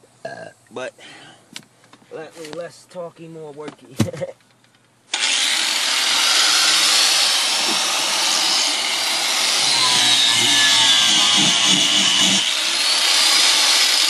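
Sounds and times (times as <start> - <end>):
angle grinder cutting sheet metal: 5.1 - 14.0.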